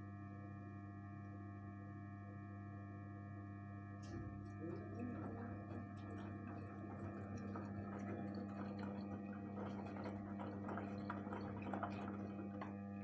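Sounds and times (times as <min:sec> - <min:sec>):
washing machine humming: 0:02.3 - 0:13.0
water and laundry sloshing: 0:04.0 - 0:13.0.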